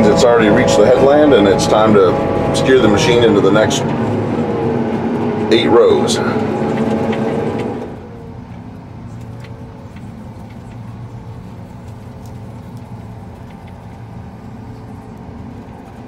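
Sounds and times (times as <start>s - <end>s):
harvester machine drone: 0.0s - 10.2s.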